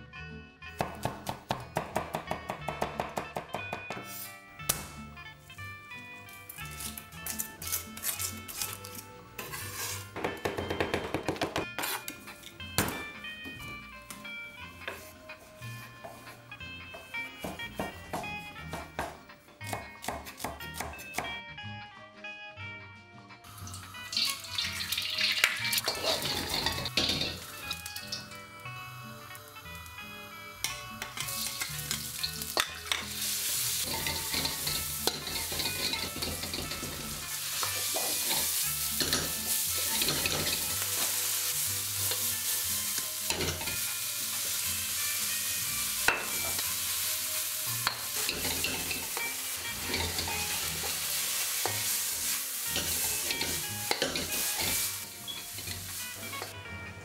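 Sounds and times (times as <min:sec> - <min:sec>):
metal ladle scraping a wok: 0:09.4 - 0:10.1, 0:11.8 - 0:12.2, 0:24.2 - 0:28.2, 0:31.1 - 0:41.2, 0:47.8 - 0:51.8
food sizzling in a wok: 0:09.4 - 0:10.2, 0:23.4 - 0:56.6.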